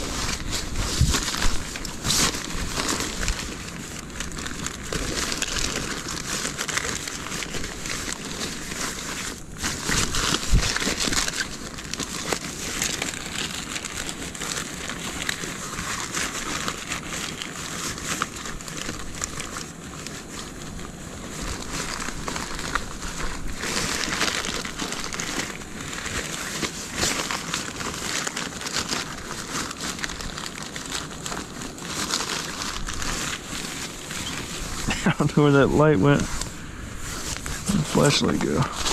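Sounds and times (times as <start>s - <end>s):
plastic crinkling and rustling: 0.0s - 38.9s.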